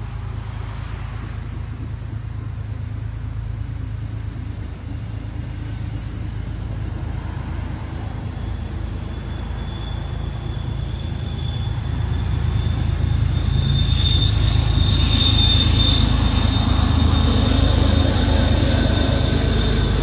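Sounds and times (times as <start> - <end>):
train rolling past rumbling: 0.0 - 20.0
high wheel squeal: 5.5 - 20.0.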